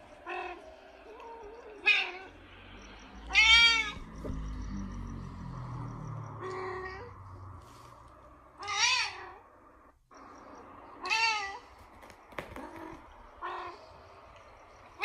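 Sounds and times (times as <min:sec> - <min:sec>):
cat meowing: 0:00.2 - 0:02.4, 0:03.3 - 0:04.4, 0:06.4 - 0:07.2, 0:08.6 - 0:09.5, 0:11.0 - 0:11.7, 0:12.4 - 0:13.9.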